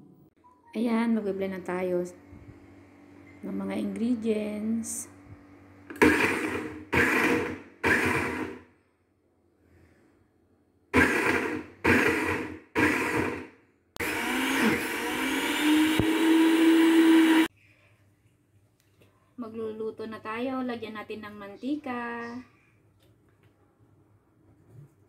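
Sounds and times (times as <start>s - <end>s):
blender pulsing and chopping: 5.9s - 8.7s, 10.9s - 17.5s.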